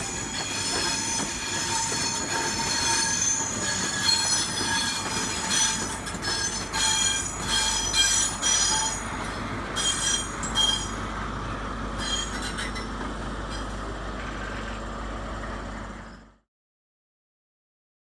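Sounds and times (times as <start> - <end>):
train wheels squealing: 0.0 - 11.1, 11.9 - 13.8, 16.0 - 16.4
train rumble: 0.0 - 16.3.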